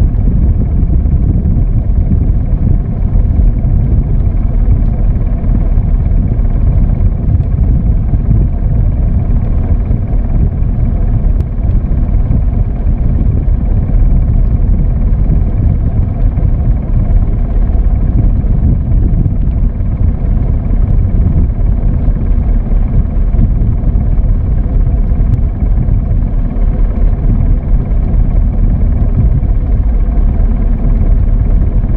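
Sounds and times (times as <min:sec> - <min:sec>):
boat engine rumbling: 0:00.0 - 0:31.9.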